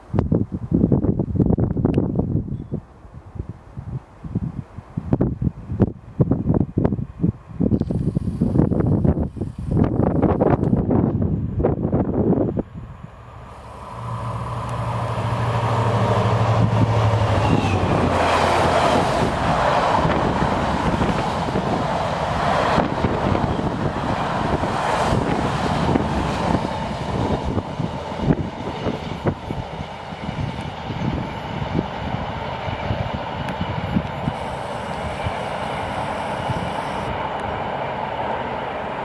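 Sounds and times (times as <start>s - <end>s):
diesel locomotive engine: 3.0s - 39.0s
freight wagons rumbling on rails: 10.8s - 39.0s.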